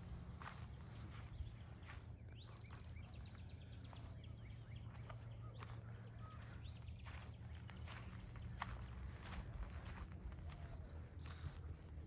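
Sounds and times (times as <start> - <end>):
birds whistling: 0.0 - 11.9
faint low rumble: 0.0 - 12.0.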